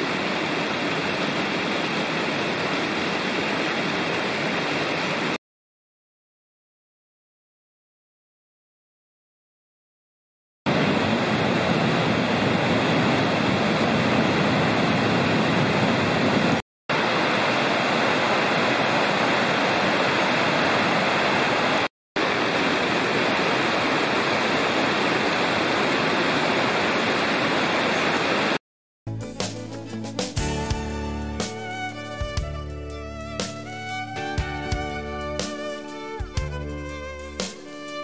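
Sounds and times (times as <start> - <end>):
water rushing over a weir: 0.0 - 5.4, 10.7 - 28.6
violin music: 30.4 - 38.0.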